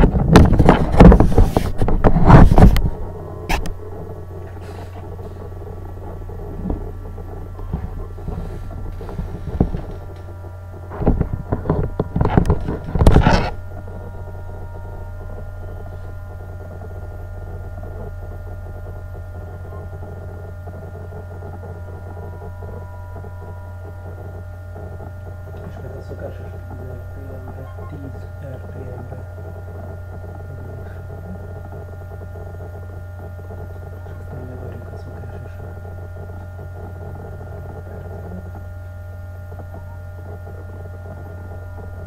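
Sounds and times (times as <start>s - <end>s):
electrical hum with higher tones: 0.0s - 42.0s
knocks and rustles: 4.4s - 13.6s.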